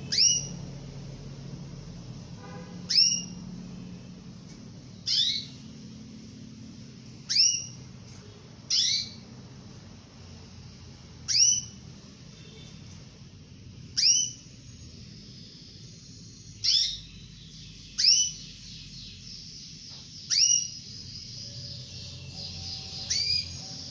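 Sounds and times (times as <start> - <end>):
canary high sliding calls: 2.8 - 3.4, 22.3 - 23.9.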